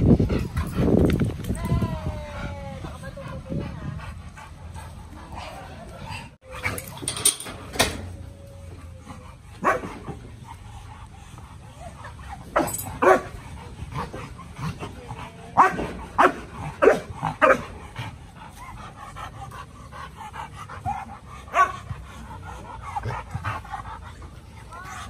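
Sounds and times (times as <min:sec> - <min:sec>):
dogs barking: 0:09.6 - 0:10.2, 0:12.4 - 0:13.4, 0:15.6 - 0:17.8, 0:20.8 - 0:21.9.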